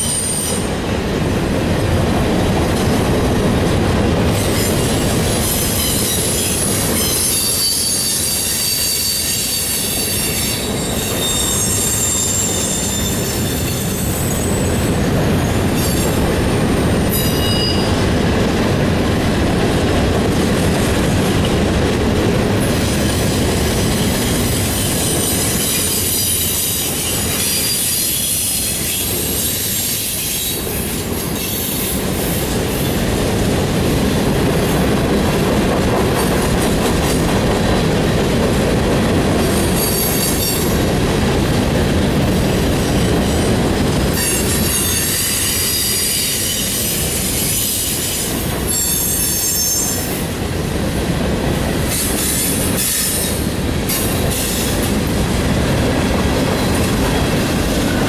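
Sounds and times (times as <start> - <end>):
clickety-clack of rails: 0.0 - 58.0
train wheels rumbling on rail: 0.0 - 58.0
high-pitched wheel squeal: 4.5 - 14.8, 17.1 - 18.0, 23.9 - 30.5, 44.2 - 50.2.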